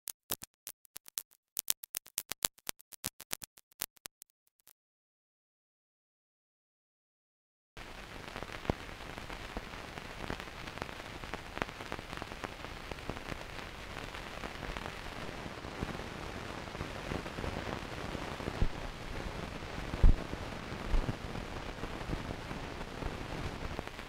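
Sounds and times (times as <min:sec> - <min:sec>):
crackles and pops: 0:00.0 - 0:04.7, 0:07.8 - 0:24.0
steady hiss: 0:07.8 - 0:24.0.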